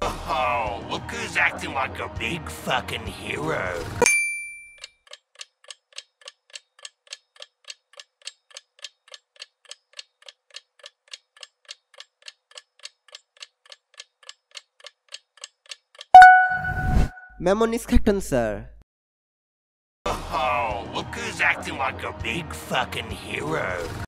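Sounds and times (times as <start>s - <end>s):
clock ticking: 4.8s - 16.6s.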